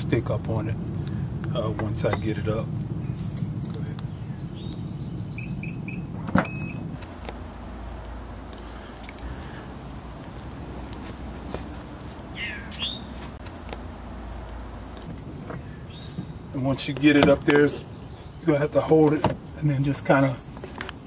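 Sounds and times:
crickets chirping: 0:00.0 - 0:21.0.

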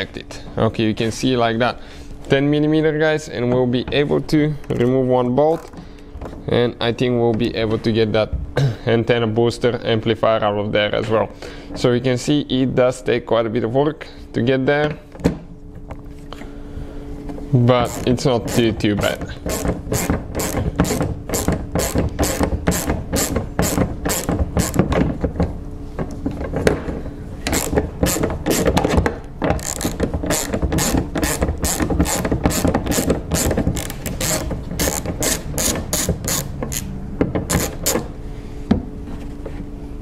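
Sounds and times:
hand ratchet clicking: 0:17.8 - 0:25.1, 0:27.4 - 0:38.1.

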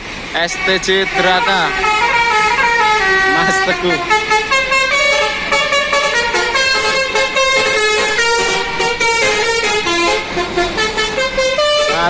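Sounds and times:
musical bus air horn tune: 0:00.4 - 0:12.0.

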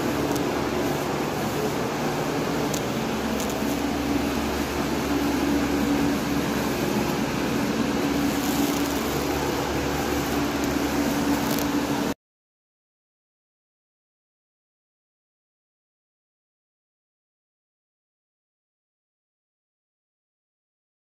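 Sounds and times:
machine hum: 0:00.0 - 0:12.2.

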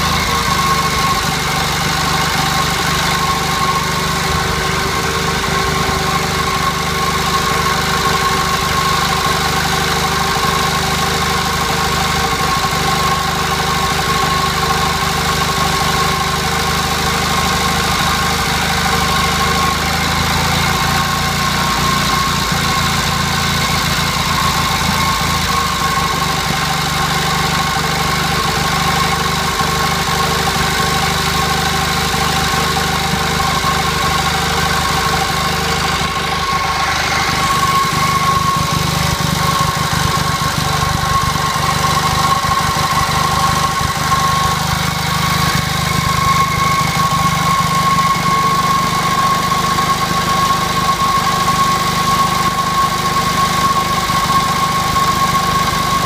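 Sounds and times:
generator engine running: 0:00.0 - 0:56.0.

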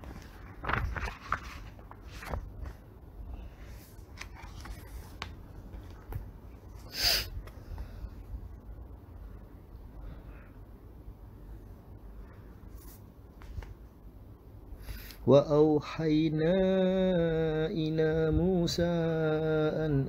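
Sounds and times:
low steady hum: 0:00.0 - 0:20.0
loud intake of breath: 0:06.8 - 0:08.2.

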